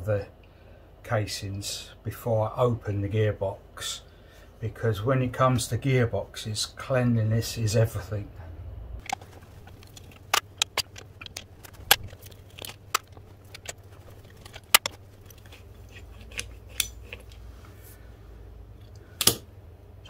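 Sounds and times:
metallic tool clicks and clinks: 9.0s - 17.4s.

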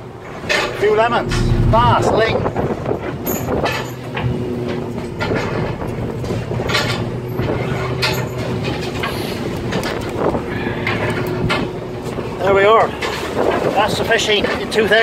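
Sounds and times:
boat engine running: 1.0s - 3.2s.

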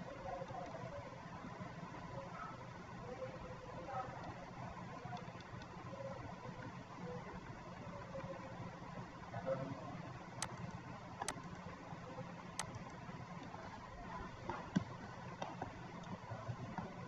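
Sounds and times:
low background hum: 0.0s - 17.0s
computer mouse clicking: 5.1s - 5.8s, 10.4s - 11.7s, 12.6s - 13.5s.

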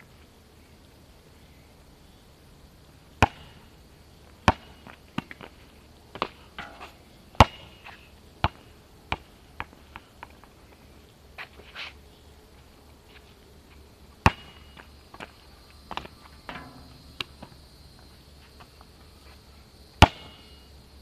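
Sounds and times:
basketball bouncing on asphalt: 3.2s - 3.6s, 4.4s - 10.5s, 14.2s - 18.1s, 20.0s - 20.6s.

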